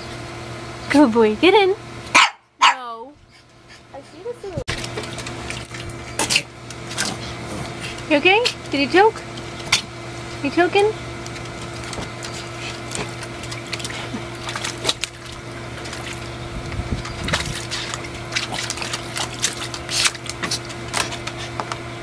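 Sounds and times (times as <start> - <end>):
steady low hum: 0.0 - 22.0
dog splashing water: 4.7 - 8.2, 11.3 - 21.4.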